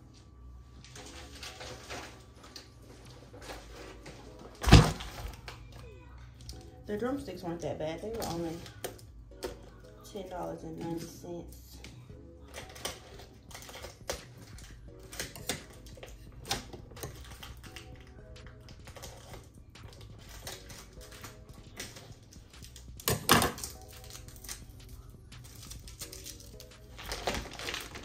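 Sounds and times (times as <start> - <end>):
soft background music: 0.0 - 28.0
plastic packaging crinkling: 0.8 - 5.8, 12.5 - 28.0.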